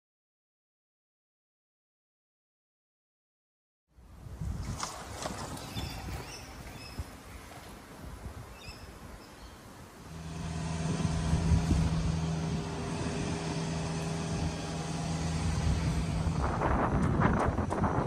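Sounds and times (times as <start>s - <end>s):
low street rumble: 9.8s - 18.0s
motor engine running: 10.1s - 18.0s.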